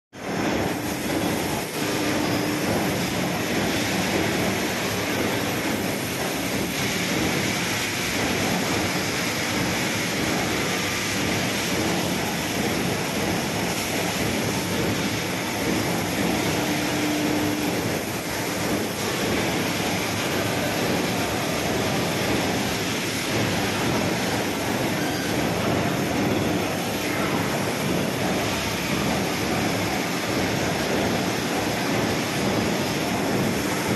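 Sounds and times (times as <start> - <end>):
industrial machine running: 0.2 - 33.9.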